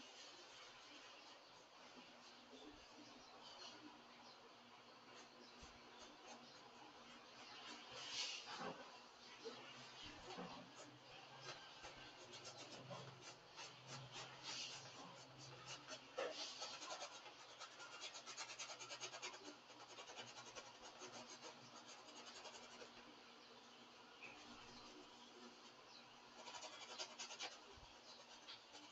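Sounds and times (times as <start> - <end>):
paintbrush scratching on canvas: 9.9 - 23.0, 26.4 - 28.9.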